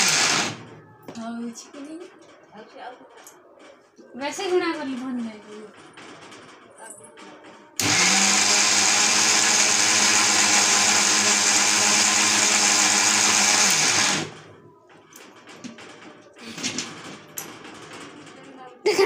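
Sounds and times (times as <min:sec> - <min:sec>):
electric mixer grinder grinding: 0:00.0 - 0:00.7, 0:07.8 - 0:14.5.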